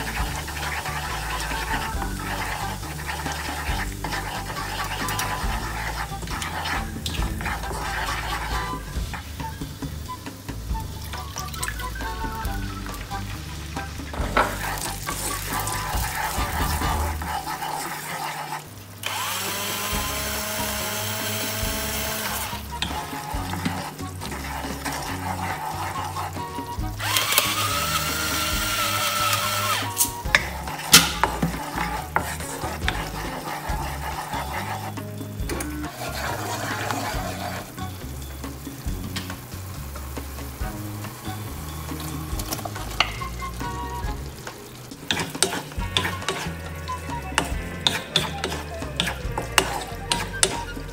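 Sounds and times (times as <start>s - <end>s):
low background music: 0.0s - 50.9s
sauce sizzling in a wok: 0.0s - 50.9s
wooden spoon stirring: 0.0s - 50.9s
electric grinder whirring: 19.0s - 22.7s, 27.0s - 30.1s.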